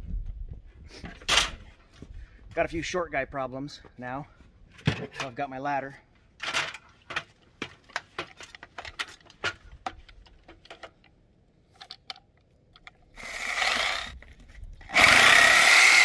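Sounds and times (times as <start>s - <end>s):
metal ladder clicking and clattering: 6.4s - 11.1s.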